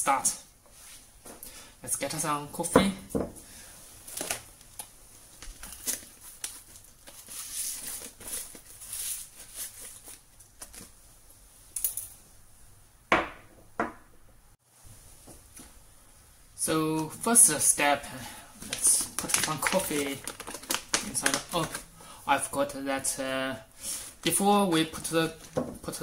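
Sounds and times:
paper bag crinkling: 5.3 - 11.0, 18.6 - 21.9.

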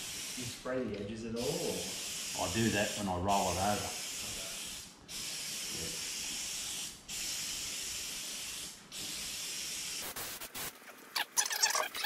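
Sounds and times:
aerosol can spraying hiss: 0.0 - 0.6, 1.6 - 3.1, 3.8 - 10.7.

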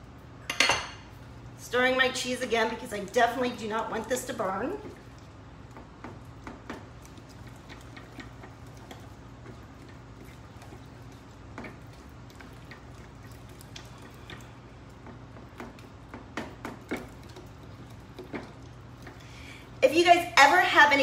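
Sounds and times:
spoon stirring cheese sauce: 3.4 - 19.2.

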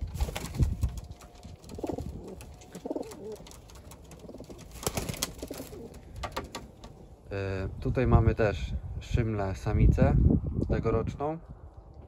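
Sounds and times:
pigeons cooing: 1.6 - 7.2.

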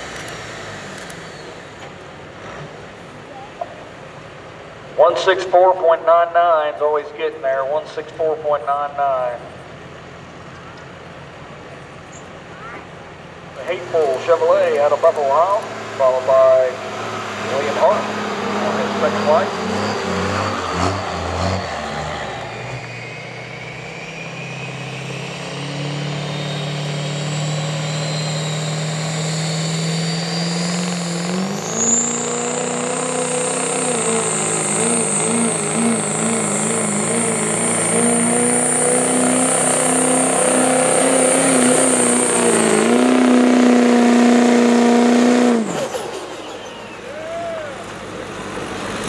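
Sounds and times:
diesel pickup engine full throttle: 0.0 - 49.0
turbo whistle: 26.2 - 44.1, 45.7 - 47.8.

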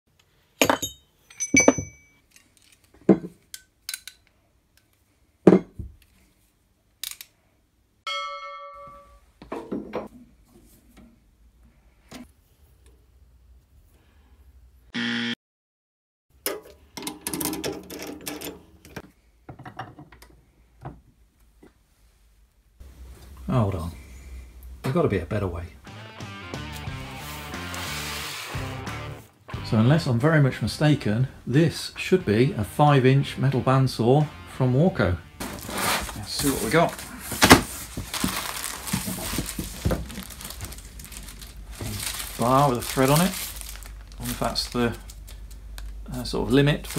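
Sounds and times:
metal ringing: 0.6 - 2.2, 8.1 - 9.2
steel bars and tools clanking: 0.6 - 2.3.

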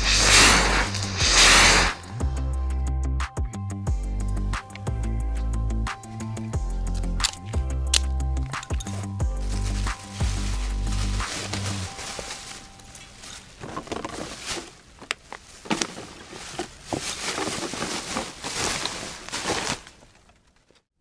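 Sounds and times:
sharp clicks and knocks: 7.0 - 9.0
plastic garbage bag rustling: 9.3 - 20.7.

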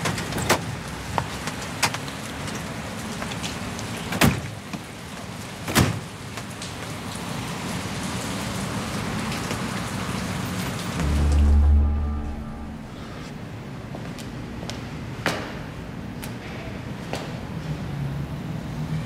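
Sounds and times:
steady rain falling: 0.0 - 13.2.

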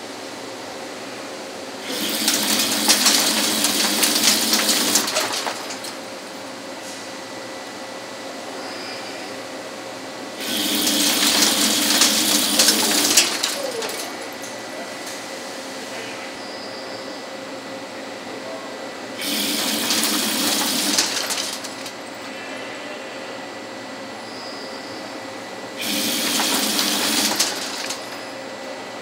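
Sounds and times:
lathe cutting steel: 1.8 - 6.0, 10.4 - 14.3, 19.2 - 22.0, 25.8 - 28.2
lathe humming: 1.8 - 6.3, 10.4 - 14.4, 19.2 - 22.2, 25.8 - 28.4.

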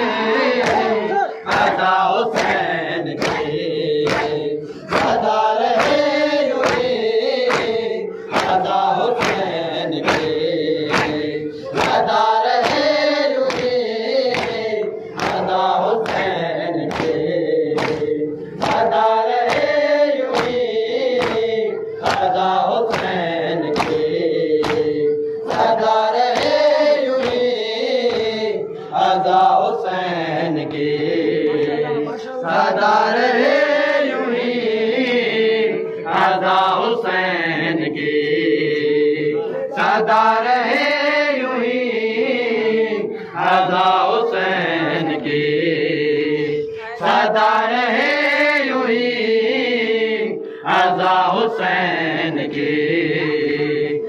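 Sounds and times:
men chanting a lament: 0.0 - 54.0
hands slapping chest: 3.2 - 5.2, 6.6 - 16.3, 16.9 - 17.2, 17.8 - 20.6, 21.2 - 22.3, 22.9 - 24.9, 26.2 - 26.6.

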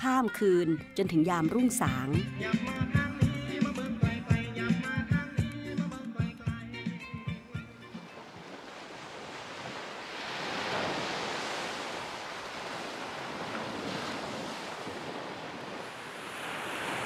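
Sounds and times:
sea waves washing on shore: 7.9 - 17.0.

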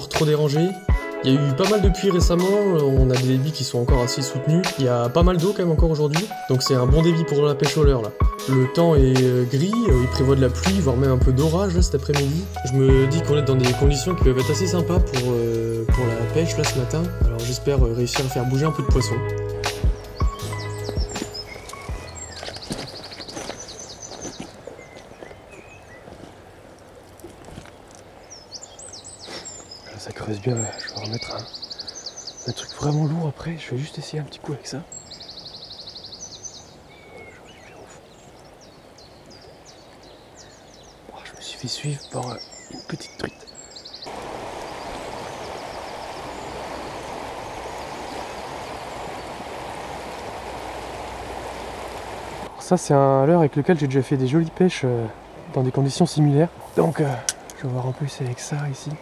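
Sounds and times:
songbirds singing: 0.0 - 59.0
brushing through dry vegetation: 20.7 - 28.2
footsteps: 20.8 - 28.1
river rushing: 44.1 - 52.6.

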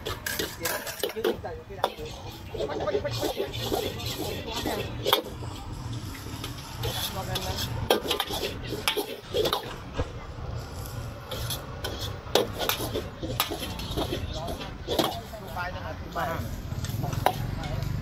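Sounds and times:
metal utensils and dishes clinking: 0.0 - 9.9, 11.3 - 15.3
murmur of background voices: 0.0 - 18.0.

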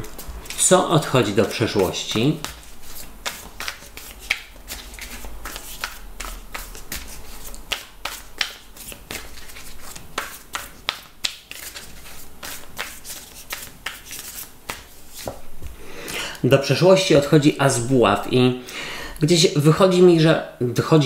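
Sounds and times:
cards being shuffled: 1.4 - 16.2.

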